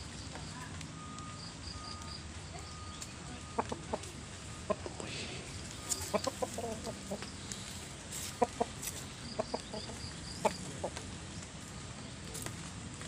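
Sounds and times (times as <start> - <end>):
rooster clucking: 3.4 - 11.1.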